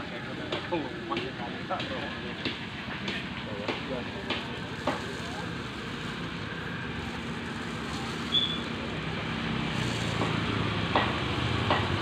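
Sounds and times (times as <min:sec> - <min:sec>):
vehicle engine hum: 0:00.0 - 0:12.0
gas torch flame rushing: 0:04.7 - 0:12.0.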